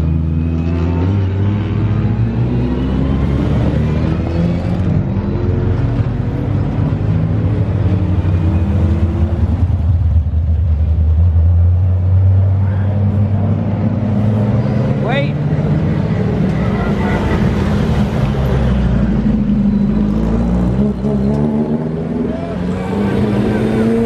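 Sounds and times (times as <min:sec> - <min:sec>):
deep engine burble passing: 0:00.0 - 0:24.0
race car engines at low revs: 0:00.0 - 0:24.0.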